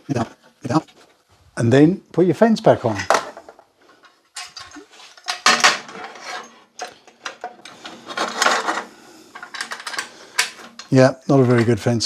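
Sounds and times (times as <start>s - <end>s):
metal fence clattering and scraping: 3.9s - 11.9s.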